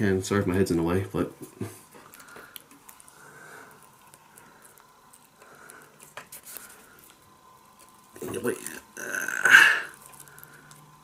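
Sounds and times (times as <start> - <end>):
small clicks and rustles of wires: 1.9 - 3.2.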